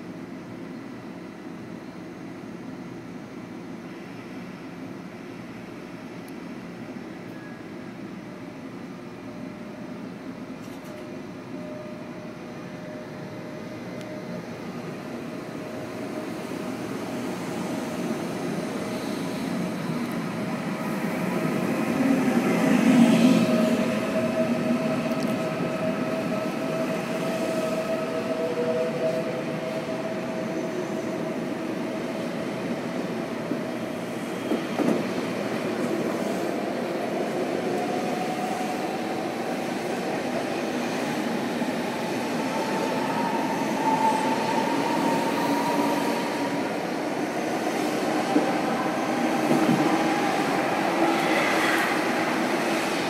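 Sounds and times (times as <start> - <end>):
train wheels rolling and clacking: 34.2 - 36.6, 47.8 - 53.0.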